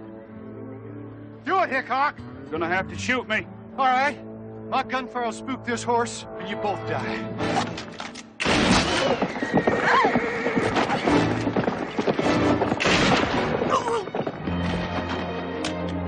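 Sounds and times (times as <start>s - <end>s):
background music: 0.0s - 16.0s
hooves clattering: 7.5s - 16.0s
horse whinnying: 8.7s - 12.2s.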